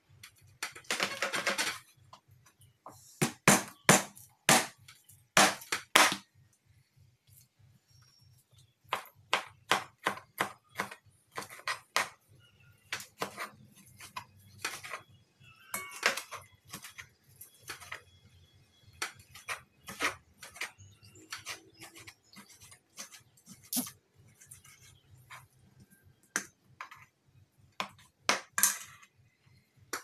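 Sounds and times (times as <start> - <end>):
knife chopping on wooden board: 8.9 - 12.2.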